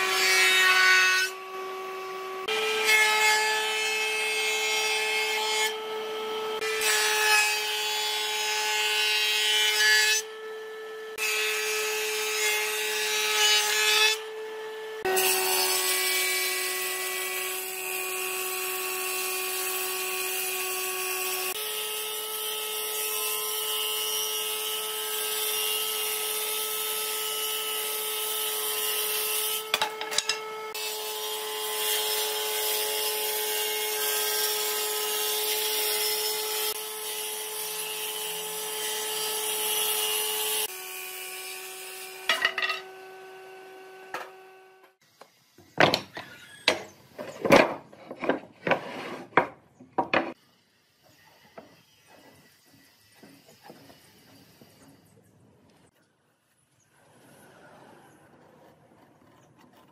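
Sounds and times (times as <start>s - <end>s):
rasping sawing of wood: 47.2s - 49.6s.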